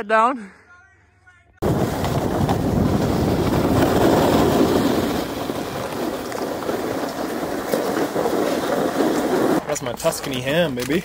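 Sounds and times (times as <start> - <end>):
snowboard sliding on snow: 1.6 - 10.2.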